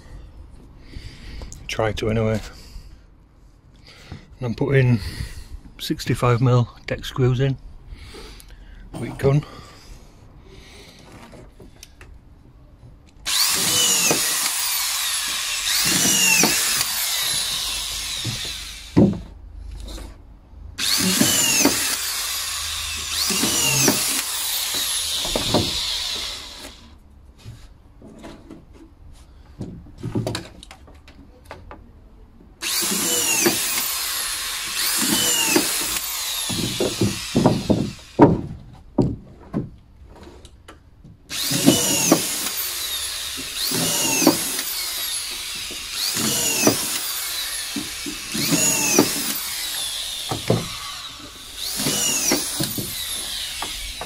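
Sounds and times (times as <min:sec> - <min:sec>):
screw gun driving screws into wood: 0:13.2 - 0:19.2, 0:20.8 - 0:26.9, 0:32.6 - 0:38.4, 0:41.3 - 0:54.0.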